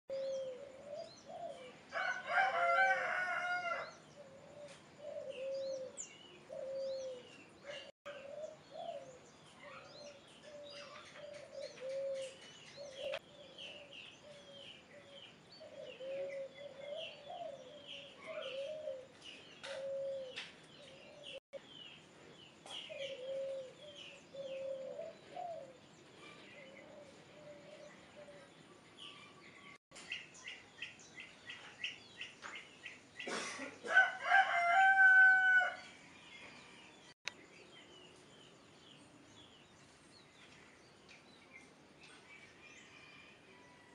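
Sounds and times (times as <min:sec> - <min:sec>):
doves cooing: 0:00.1 - 0:21.4, 0:22.7 - 0:29.7
small birds chirping: 0:03.0 - 0:34.9, 0:35.6 - 0:43.2.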